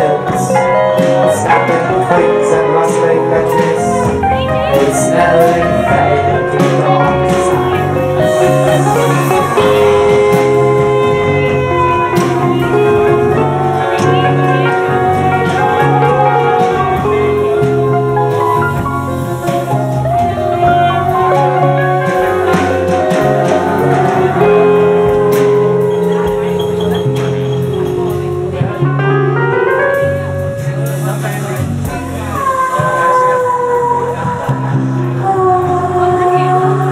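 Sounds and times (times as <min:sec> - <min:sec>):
live band playing: 0:00.0 - 0:36.9
person singing: 0:00.0 - 0:36.9.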